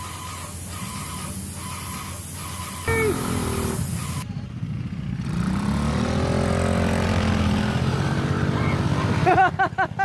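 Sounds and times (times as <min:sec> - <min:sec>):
quad bike engine running: 0:00.0 - 0:09.6.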